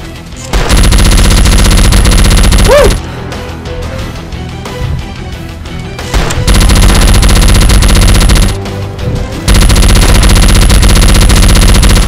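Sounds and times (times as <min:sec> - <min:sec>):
machine-gun automatic fire: 0:00.6 - 0:03.0, 0:06.2 - 0:08.6, 0:09.5 - 0:12.0.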